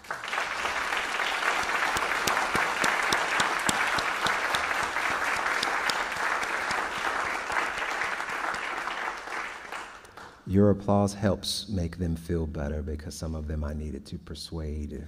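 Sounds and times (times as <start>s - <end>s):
audience applause: 0.0s - 10.4s
nearby sharp claps: 0.0s - 10.4s.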